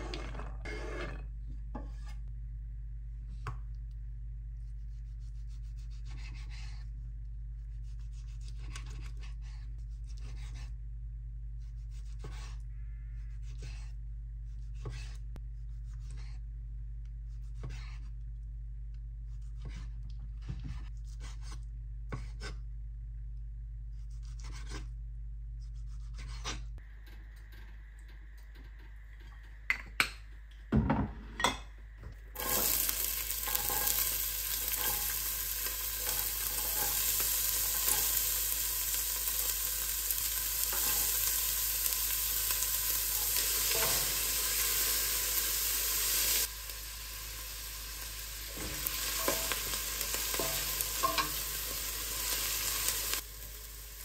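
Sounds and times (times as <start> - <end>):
low hum: 0.0 - 5.6, 9.6 - 11.9, 12.6 - 20.9.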